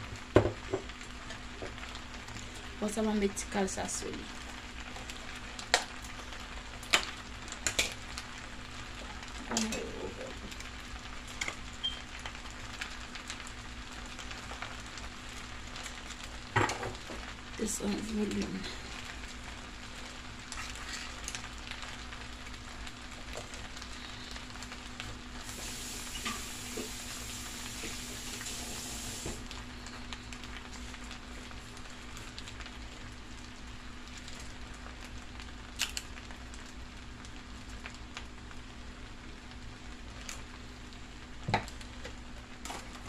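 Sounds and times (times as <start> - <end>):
pan sizzling with crackles: 0.0 - 43.0.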